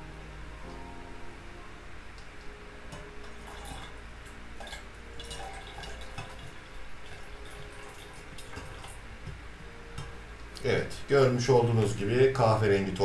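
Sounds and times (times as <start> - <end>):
steady low hum: 0.0 - 13.0
water trickling between beakers: 3.2 - 9.0.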